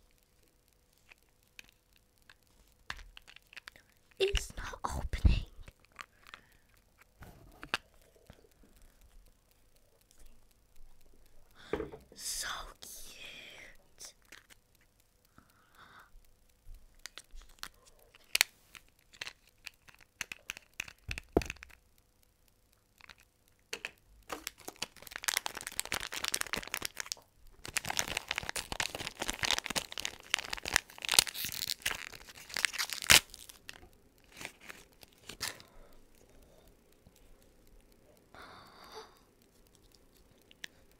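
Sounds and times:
packaging crinkling and tearing: 0:01.0 - 0:08.1, 0:14.2 - 0:14.6, 0:17.0 - 0:21.8, 0:23.9 - 0:35.7
toy packaging being unwrapped: 0:01.0 - 0:08.1, 0:13.2 - 0:14.6, 0:17.0 - 0:21.8, 0:23.0 - 0:35.6.

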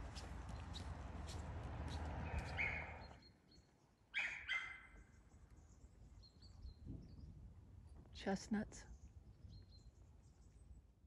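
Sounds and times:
footsteps: 0:00.0 - 0:03.0
sharp animal calls: 0:02.2 - 0:03.2, 0:04.2 - 0:04.9.

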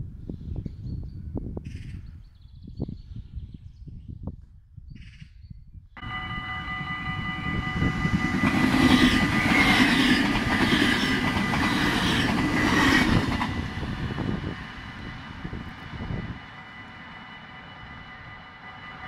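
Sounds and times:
crossing warning bell ringing: 0:06.0 - 0:19.0
train rumble and wheel clatter: 0:06.0 - 0:19.0.

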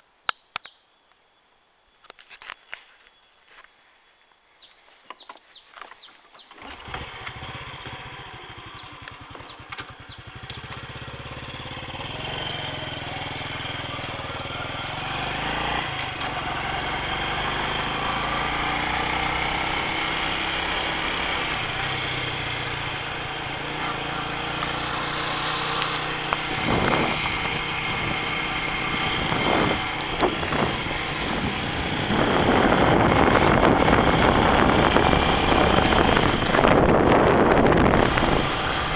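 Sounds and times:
vehicle engine starting and running: 0:06.4 - 0:38.9
wind noise on microphone: 0:26.2 - 0:38.9.

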